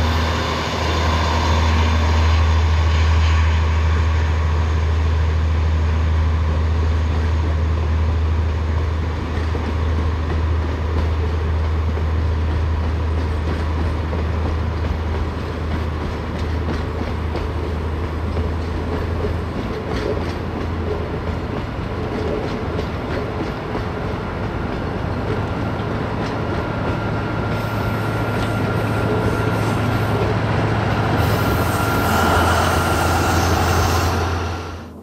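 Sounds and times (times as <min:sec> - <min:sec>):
train wheels clacking: 0:09.2 - 0:34.8.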